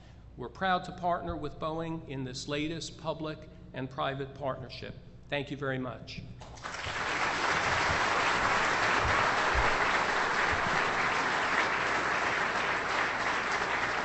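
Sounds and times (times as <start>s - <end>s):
large crowd applauding: 6.5s - 14.0s.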